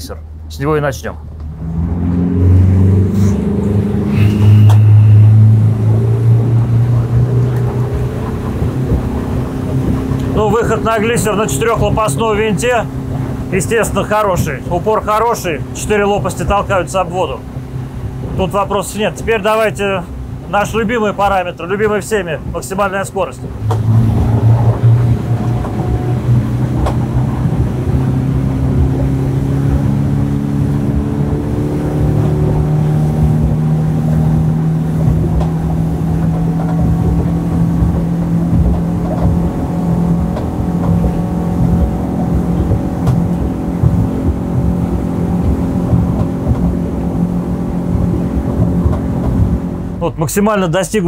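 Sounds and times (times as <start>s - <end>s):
outboard motor at full throttle: 0.0s - 51.0s
wind buffeting microphone: 1.4s - 50.0s.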